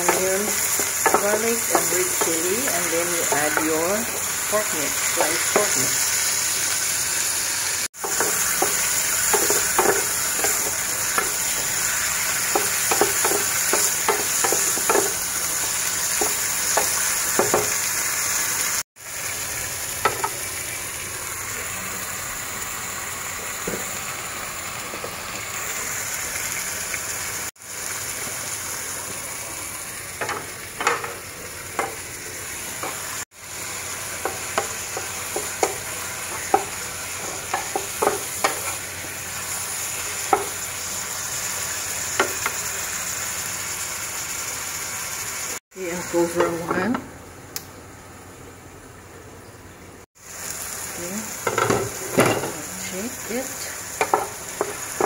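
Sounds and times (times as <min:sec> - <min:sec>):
spatula scraping and clacking on pan: 0:00.0 - 0:04.3, 0:08.0 - 0:11.8, 0:12.4 - 0:15.2, 0:34.1 - 0:38.8, 0:54.0 - 0:55.0
food sizzling in a pan: 0:00.0 - 0:48.6, 0:50.1 - 0:55.0.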